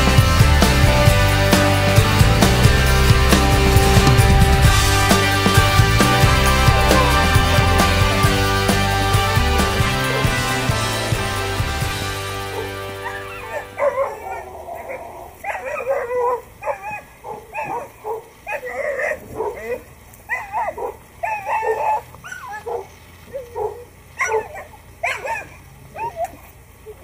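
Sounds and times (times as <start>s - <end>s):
dog whining and yelping: 12.6s - 27.0s.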